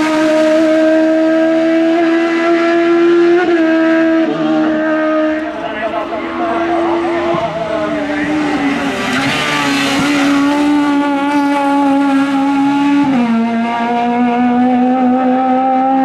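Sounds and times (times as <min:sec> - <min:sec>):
car engine accelerating hard: 0:00.0 - 0:16.0.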